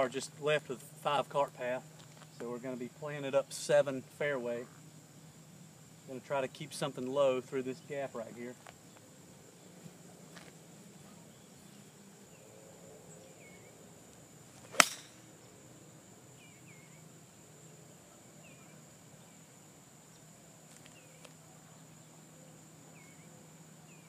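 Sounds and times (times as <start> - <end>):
high insect drone: 0.0 - 24.0
golf club striking ball: 14.7 - 15.2.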